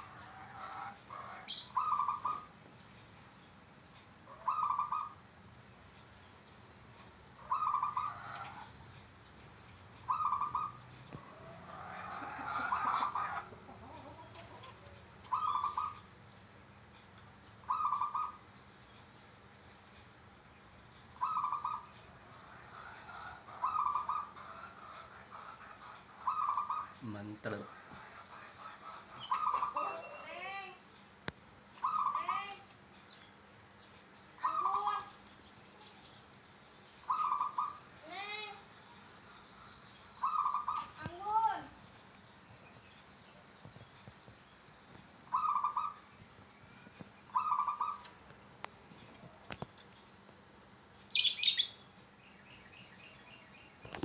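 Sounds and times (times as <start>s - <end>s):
dove cooing: 0.0s - 2.5s, 4.3s - 5.2s, 7.4s - 8.8s, 10.0s - 16.0s, 17.7s - 18.4s, 21.2s - 27.0s, 28.2s - 30.2s, 31.8s - 32.4s, 34.4s - 35.1s, 37.1s - 37.8s, 40.2s - 41.0s, 45.3s - 46.0s, 47.3s - 48.2s.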